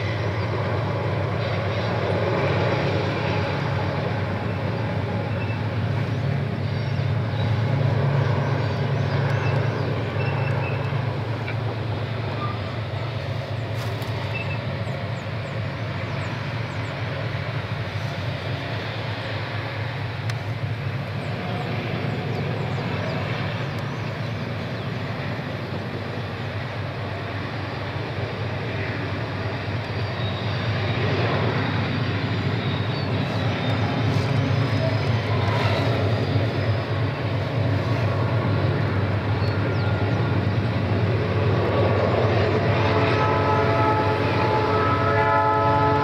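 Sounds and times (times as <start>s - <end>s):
locomotive engine rumble: 0.0s - 46.0s
locomotive horn: 42.6s - 46.0s.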